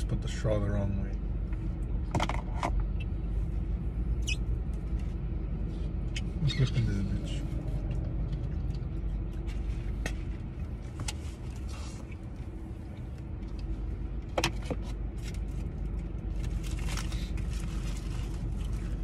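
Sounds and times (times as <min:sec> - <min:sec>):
car engine hum: 0:00.0 - 0:19.0.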